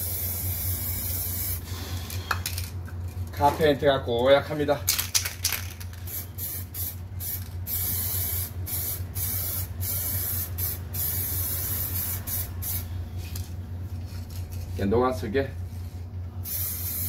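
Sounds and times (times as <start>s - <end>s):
spray can hissing bursts: 0.0s - 1.6s, 6.1s - 12.9s, 16.4s - 17.0s.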